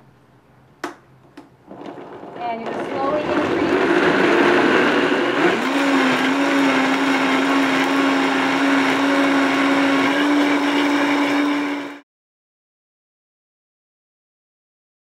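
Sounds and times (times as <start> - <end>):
blender motor running: 1.7 - 12.0.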